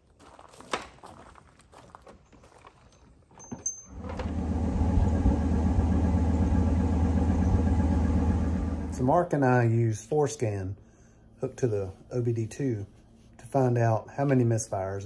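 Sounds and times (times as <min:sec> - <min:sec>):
loud car engine running: 0:04.0 - 0:09.1.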